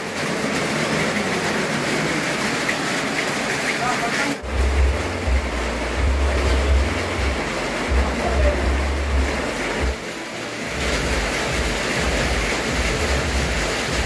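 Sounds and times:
steady rain: 0.0s - 14.0s
low microphone rumble: 4.4s - 10.0s.

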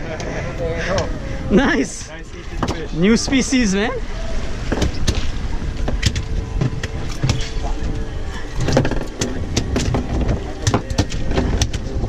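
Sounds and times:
boat engine rumble: 0.0s - 12.0s
wind: 0.0s - 12.0s.

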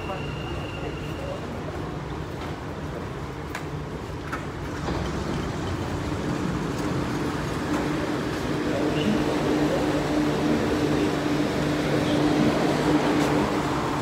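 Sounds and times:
train electric rumble and hum: 0.0s - 14.0s
doors sliding open: 4.1s - 14.0s.

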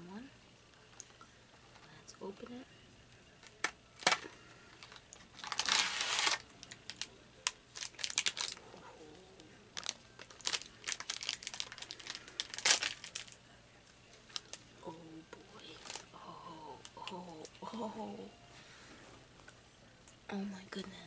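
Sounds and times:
foil packet crinkling: 3.4s - 8.6s, 9.7s - 13.4s, 14.2s - 14.6s, 15.6s - 16.1s
cardboard box ripping: 5.4s - 6.4s.

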